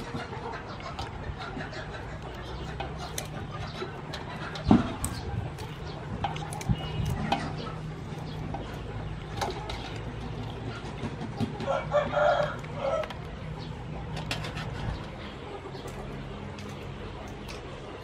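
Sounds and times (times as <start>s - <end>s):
scissors snipping shells: 2.8s - 8.4s.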